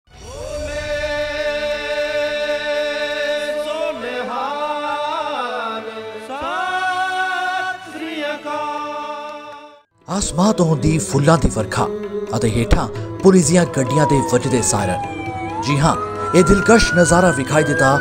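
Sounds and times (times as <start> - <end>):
person chanting: 0.1 - 18.0.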